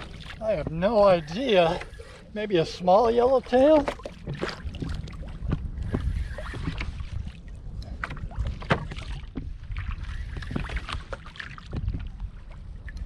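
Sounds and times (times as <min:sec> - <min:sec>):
water splashing against kayak: 0:00.0 - 0:13.0
wind rumble on microphone: 0:00.0 - 0:13.0
short knocks on hull: 0:03.8 - 0:06.9, 0:08.0 - 0:09.6.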